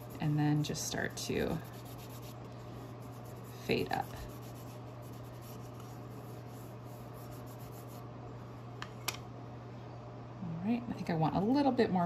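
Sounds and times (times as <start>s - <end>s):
wipe rubbing on wood: 1.4s - 2.4s, 3.0s - 8.0s.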